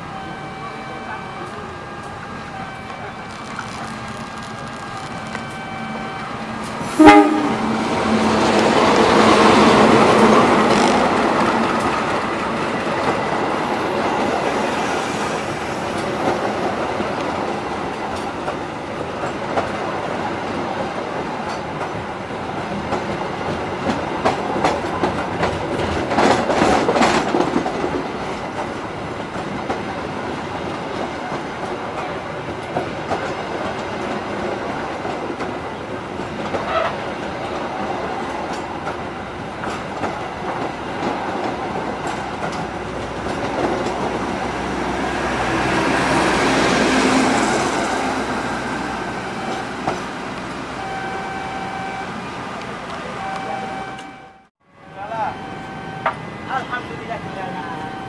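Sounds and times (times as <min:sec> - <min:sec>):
locomotive engine passing: 0:00.9 - 0:28.5, 0:33.4 - 0:58.0
locomotive horn: 0:04.2 - 0:08.4
train wheels clacking over rail joints: 0:21.4 - 0:30.0.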